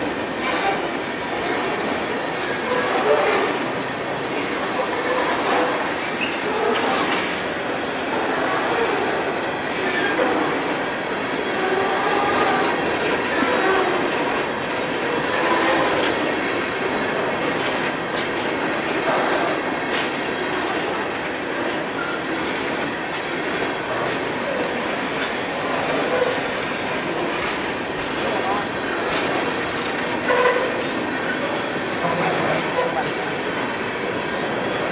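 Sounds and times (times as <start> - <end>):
train wheels clicking over rail joints: 0.0 - 34.9
wheel squeal: 29.0 - 30.8.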